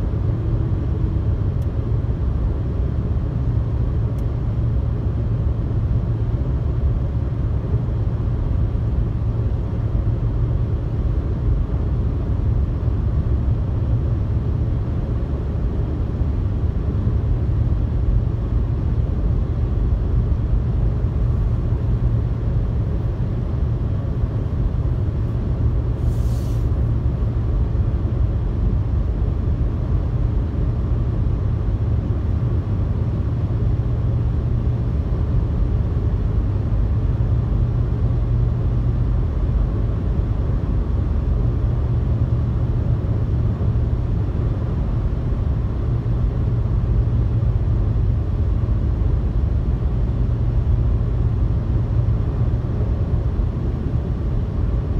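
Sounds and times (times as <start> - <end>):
car cabin road and engine rumble: 0.0 - 54.9.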